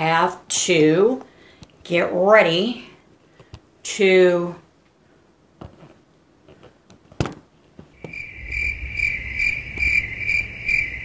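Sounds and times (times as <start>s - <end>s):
insect-like chirping: 8.0s - 11.0s
low rumble: 8.2s - 11.0s.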